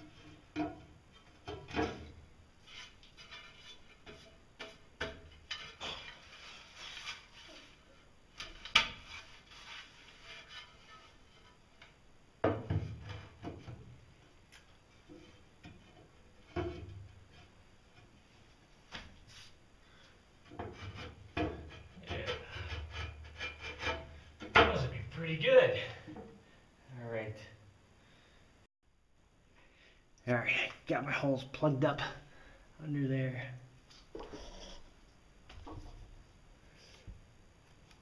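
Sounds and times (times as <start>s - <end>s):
tiles clacking and scraping: 0.0s - 13.8s.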